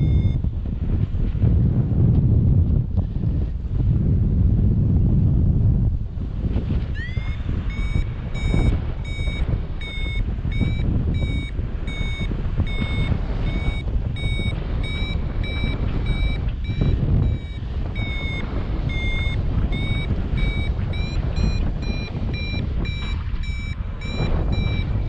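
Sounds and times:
short high beeps: 0:00.0 - 0:00.4, 0:07.0 - 0:25.0
wind rushing over microphone: 0:00.0 - 0:25.0.

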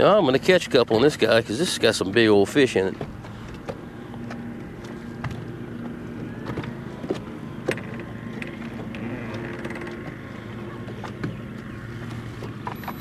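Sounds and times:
electric boat motor humming: 0:00.0 - 0:13.0
light knocks against hull: 0:02.9 - 0:13.0.

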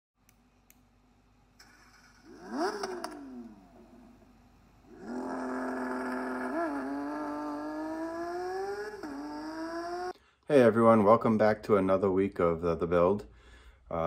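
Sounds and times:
car engine revving: 0:01.6 - 0:10.2.

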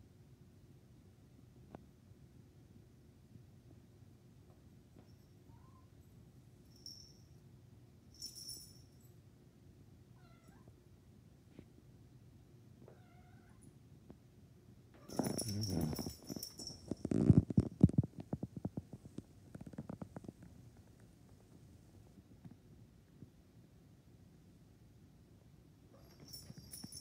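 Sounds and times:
collar bell jingling: 0:06.6 - 0:07.4, 0:08.1 - 0:09.2, 0:15.0 - 0:17.5, 0:26.0 - 0:27.0
cat meows: 0:10.2 - 0:10.7, 0:12.9 - 0:13.6.

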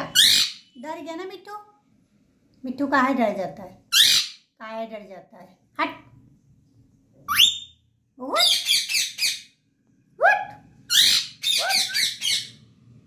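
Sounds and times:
parakeet calling: 0:00.0 - 0:00.8, 0:03.9 - 0:04.5, 0:08.4 - 0:09.6, 0:10.4 - 0:12.7
parakeet chattering calls: 0:00.0 - 0:00.8, 0:03.9 - 0:04.5, 0:08.4 - 0:09.5, 0:10.9 - 0:12.6.

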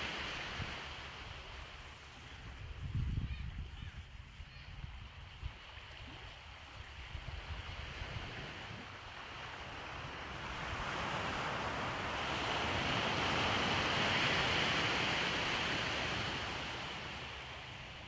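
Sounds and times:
wave washing up beach: 0:00.0 - 0:02.8, 0:05.7 - 0:18.0.

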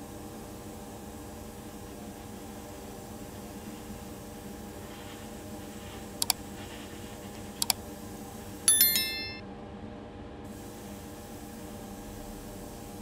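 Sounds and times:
low hum and hiss: 0:00.0 - 0:13.0
mouse clicks: 0:06.2 - 0:06.4, 0:07.6 - 0:07.8
notification bell chime: 0:08.7 - 0:09.4.

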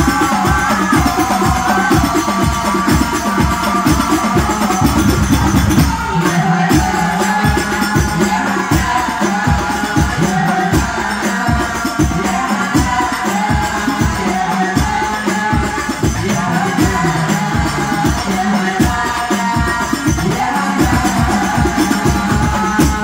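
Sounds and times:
frame drums: 0:00.0 - 0:23.0
men singing in unison: 0:00.0 - 0:23.0
bass drum beating: 0:04.1 - 0:07.1.

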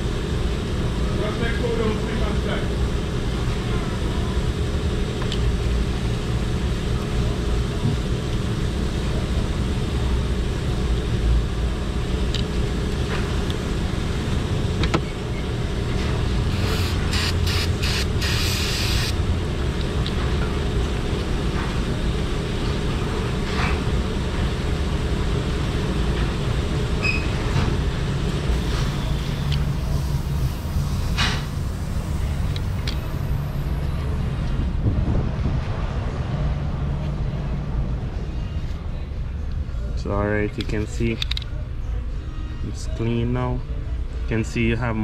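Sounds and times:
vehicle engine running: 0:27.6 - 0:38.3.

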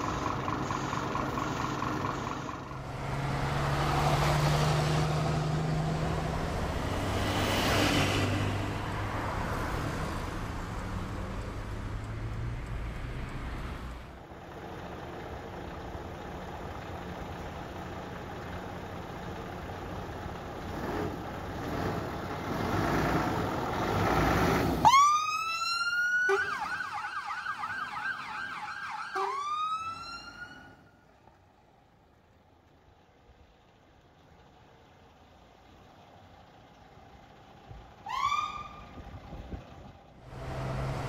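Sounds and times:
diesel engine running: 0:00.0 - 0:24.9, 0:30.9 - 0:41.0
electronic siren whooping and yelping: 0:24.9 - 0:30.8, 0:38.1 - 0:38.7.

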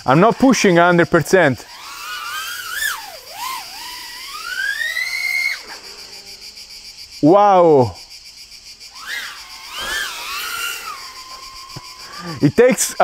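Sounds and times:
drone motors whining: 0:01.4 - 0:07.1, 0:08.8 - 0:13.0.

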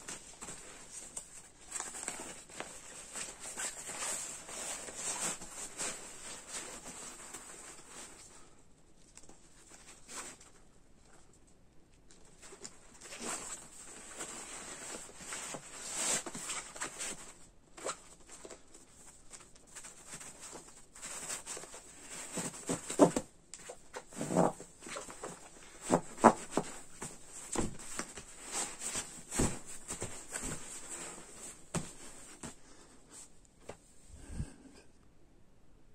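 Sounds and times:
nylon fabric rustling: 0:19.9 - 0:32.6.

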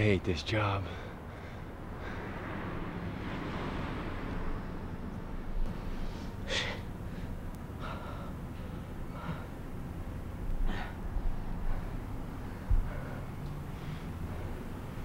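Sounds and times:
person breathing hard: 0:00.8 - 0:02.7, 0:05.7 - 0:15.0.

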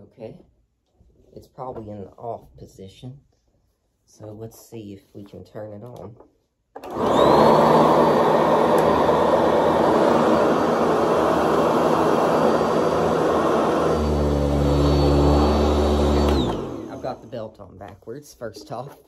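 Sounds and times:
vacuum cleaner motor whining: 0:06.8 - 0:17.5.

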